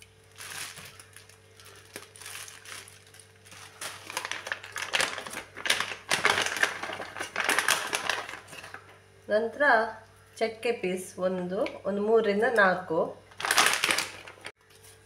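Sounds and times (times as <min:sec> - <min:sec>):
dried spices crinkling: 0:00.0 - 0:08.9, 0:13.3 - 0:14.5.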